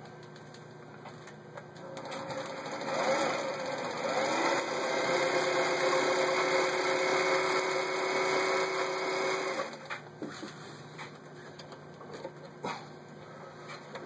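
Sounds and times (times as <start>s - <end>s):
electric sewing machine running: 1.8s - 9.9s.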